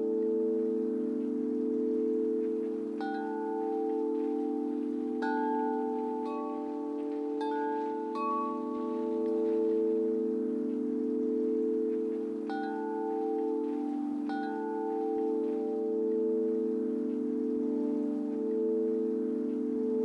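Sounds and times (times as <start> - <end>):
metal wind chimes ringing: 0.0 - 20.0.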